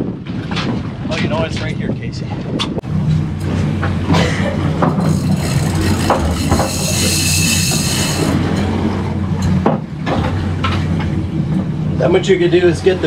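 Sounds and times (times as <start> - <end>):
outboard motor idling: 3.4 - 9.4
rod and reel knocks: 4.8 - 8.7
fishing reel drag whining: 4.8 - 8.9.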